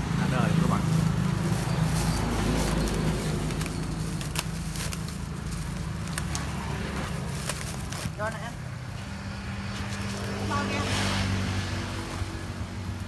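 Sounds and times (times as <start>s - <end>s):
plastic bag crinkling: 0.8s - 8.4s.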